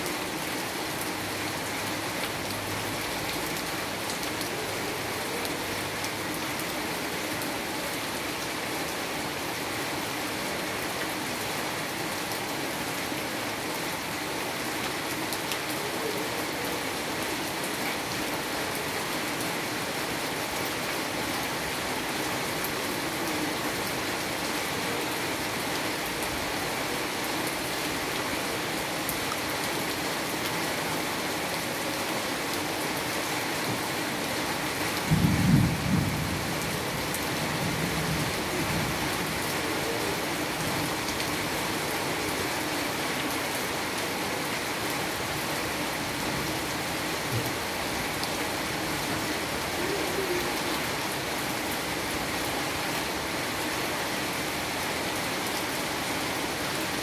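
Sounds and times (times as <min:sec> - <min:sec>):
rain on cobbled street: 0:00.0 - 0:57.0
low rumble of thunder: 0:35.1 - 0:36.6.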